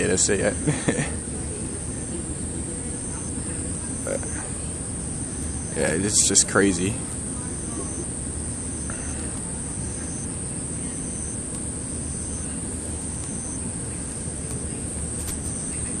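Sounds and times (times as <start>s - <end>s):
high-pitched insect chorus: 0.0s - 16.0s
lower insect call: 0.0s - 16.0s
low wind rumble: 1.2s - 16.0s
handling noise: 13.1s - 15.8s.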